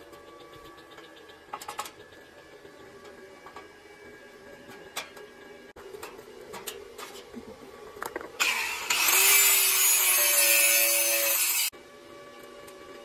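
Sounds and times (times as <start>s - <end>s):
angle grinder cutting steel: 8.4s - 11.7s.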